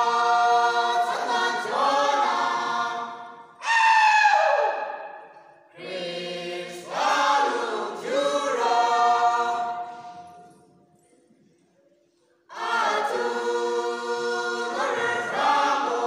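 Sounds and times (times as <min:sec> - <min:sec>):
group singing unaccompanied: 0:00.0 - 0:03.6, 0:05.7 - 0:10.5, 0:12.5 - 0:16.0.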